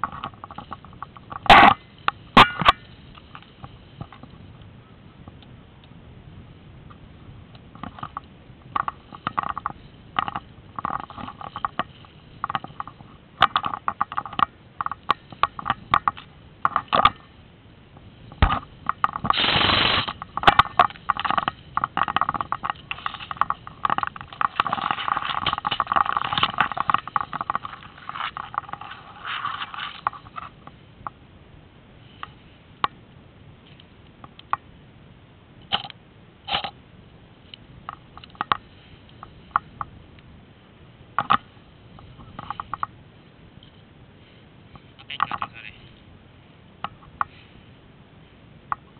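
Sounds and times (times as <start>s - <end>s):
tall grass rustling and scraping: 18.2s - 30.7s.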